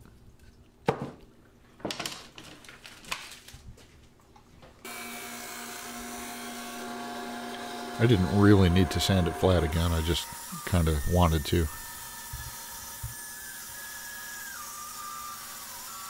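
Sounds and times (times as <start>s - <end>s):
drum sander humming: 4.9s - 13.7s.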